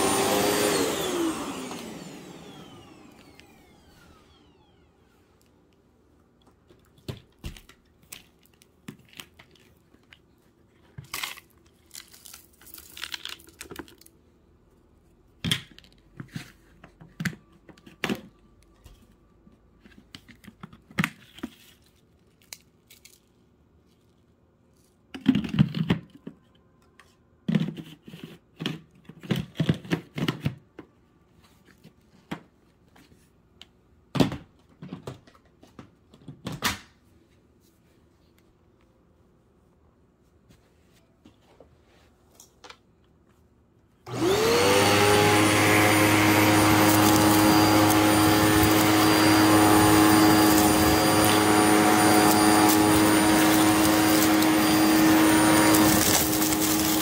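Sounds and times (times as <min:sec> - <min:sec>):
rustling and crinkling: 0:06.6 - 0:15.1.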